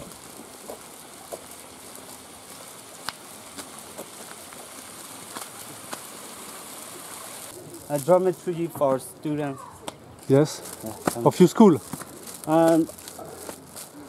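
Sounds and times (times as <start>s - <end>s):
sandal footsteps on concrete: 0.0s - 6.1s, 9.8s - 14.0s
outdoor hiss: 0.0s - 14.0s.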